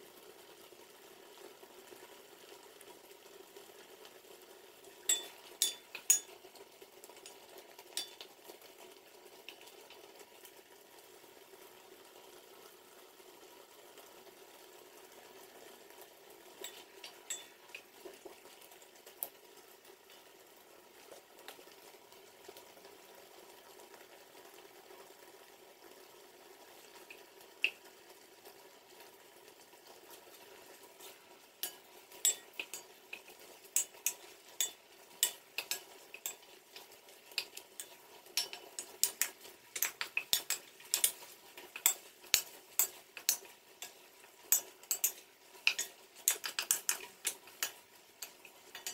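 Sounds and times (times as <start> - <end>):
hiss of cooking in a pot: 0.0 - 48.9
wooden spatula scraping a pot: 31.0 - 48.9.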